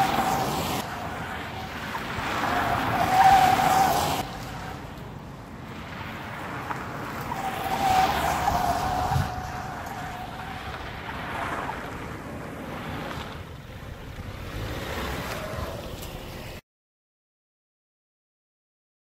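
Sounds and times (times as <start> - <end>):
tyres squealing on asphalt: 0.0 - 16.6
car rushing past: 5.7 - 16.6.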